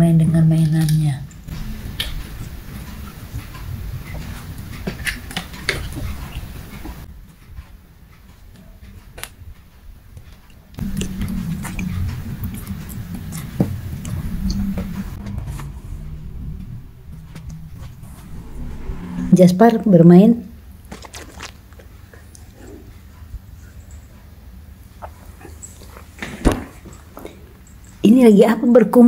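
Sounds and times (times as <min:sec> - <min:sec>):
low rumble: 0:01.5 - 0:07.1, 0:10.8 - 0:20.9.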